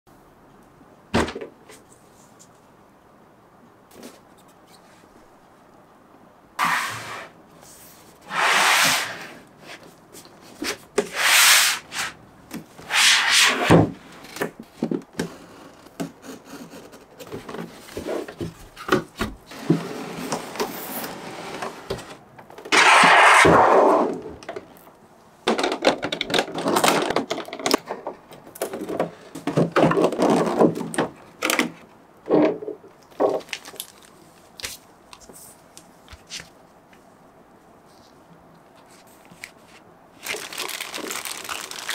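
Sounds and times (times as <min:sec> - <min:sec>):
cardboard box rubbing and scraping: 0:06.6 - 0:07.3, 0:08.2 - 0:09.4
plastic tray rustling: 0:38.8 - 0:41.9.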